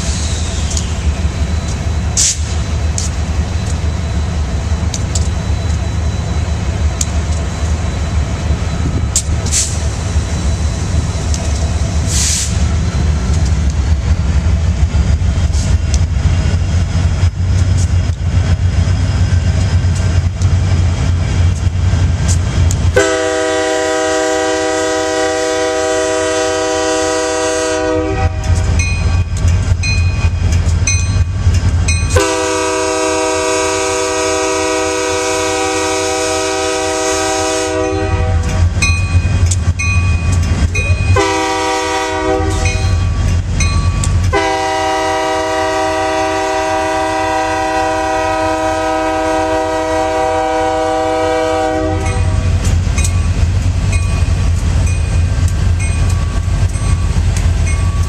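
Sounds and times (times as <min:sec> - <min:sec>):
diesel engines rumbling: 0:00.0 - 0:58.0
rail cars clickety-clack: 0:00.0 - 0:58.0
locomotive horn chord blasts: 0:23.0 - 0:28.6, 0:32.1 - 0:38.6, 0:41.1 - 0:42.8, 0:44.3 - 0:52.4
train wheels clattering: 0:37.7 - 0:45.8, 0:51.4 - 0:58.0.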